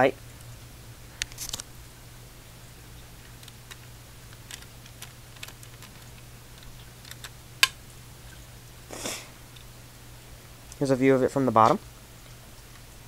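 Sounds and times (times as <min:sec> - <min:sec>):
steady low hum: 0:00.0 - 0:13.0
plastic bricks clicking and rattling: 0:03.4 - 0:07.3.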